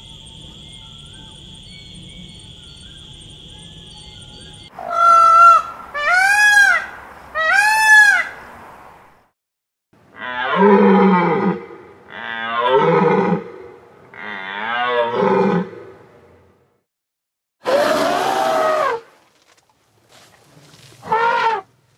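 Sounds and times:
peacock calling: 0:00.0 - 0:08.4.

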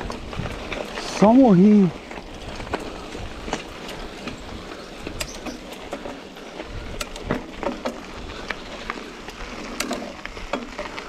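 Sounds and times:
tyre and wind rush: 0:00.0 - 0:11.0
bike knocks and clatters: 0:02.1 - 0:08.6.

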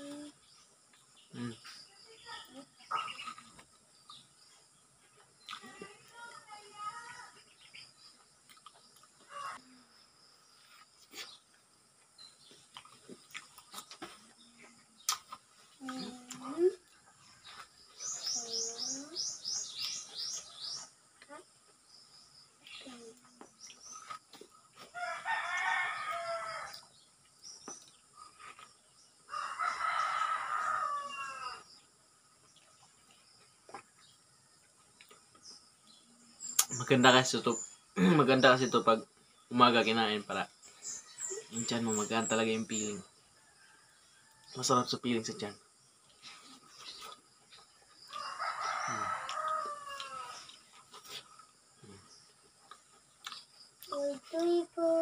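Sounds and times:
rooster crowing: 0:24.9 - 0:26.9, 0:29.3 - 0:31.7, 0:48.1 - 0:50.5.

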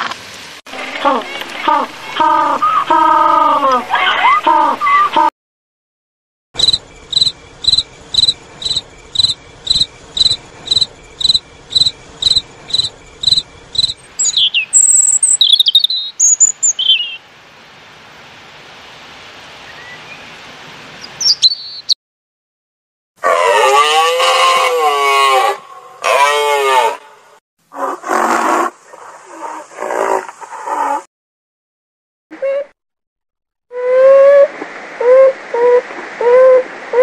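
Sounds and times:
cricket chirping: 0:06.6 - 0:17.0
robin singing: 0:06.6 - 0:17.2, 0:19.7 - 0:20.4, 0:21.0 - 0:22.0.

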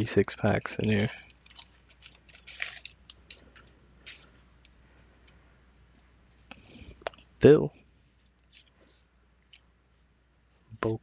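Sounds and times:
paper wrapper crinkling and tearing: 0:00.0 - 0:04.3
cards clicking: 0:00.1 - 0:04.8.

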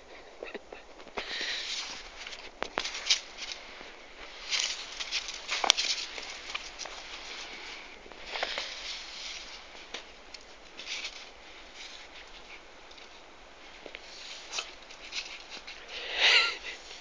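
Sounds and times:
footsteps crunching in snow: 0:01.4 - 0:12.2.

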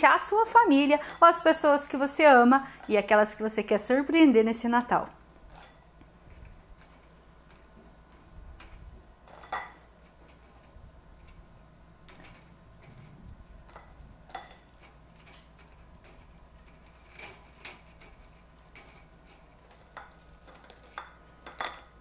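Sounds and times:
cookies clinking on tray and bowl: 0:05.5 - 0:11.4, 0:12.0 - 0:22.0.

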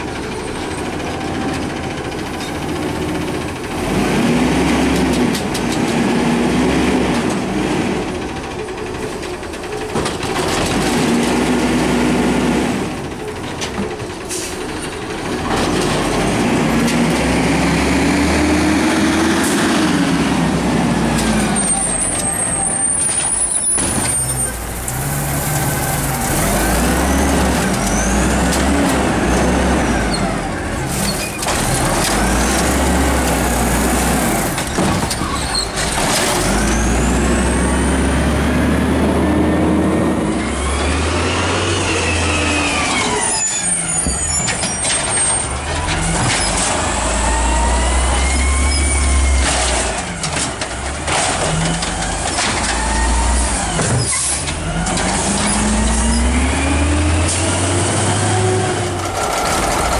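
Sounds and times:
garbage truck engine running: 0:00.0 - 0:59.9
air brakes hissing: 0:14.2 - 0:14.9.

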